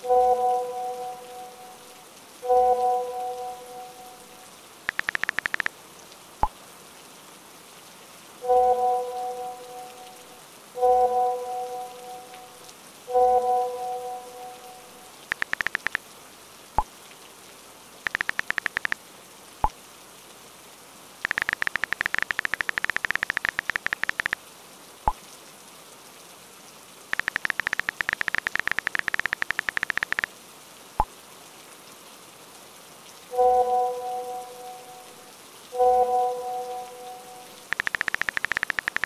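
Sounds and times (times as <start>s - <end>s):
steady rain hiss: 0.0s - 39.0s
smartphone keyboard clicks: 4.9s - 5.7s, 15.3s - 16.0s, 18.1s - 19.0s, 21.2s - 24.4s, 27.2s - 30.3s, 37.7s - 39.0s.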